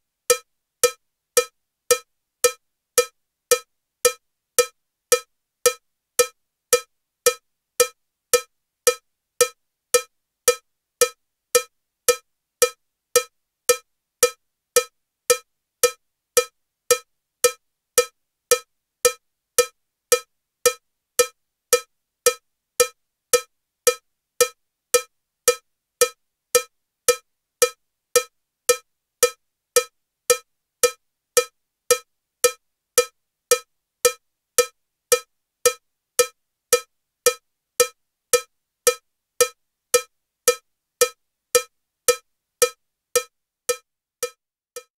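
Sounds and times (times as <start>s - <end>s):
metronome cowbell strikes: 42.1s - 44.9s.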